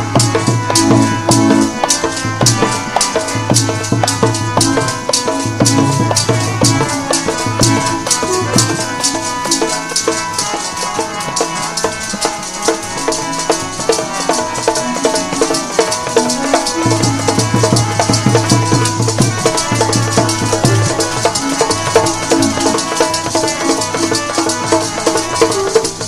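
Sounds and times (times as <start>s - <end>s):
held melodic notes: 0.0s - 26.0s
quick dense percussion: 0.0s - 26.0s.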